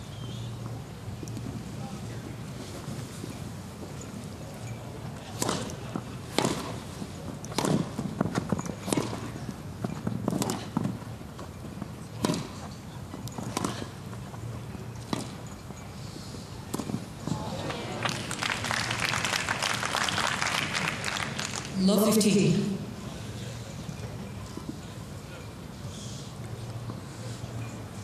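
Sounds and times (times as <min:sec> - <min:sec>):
stadium background: 0:00.0 - 0:28.0
tennis ball struck by racket: 0:05.4 - 0:05.7, 0:06.3 - 0:06.8, 0:07.6 - 0:07.9, 0:12.2 - 0:12.6.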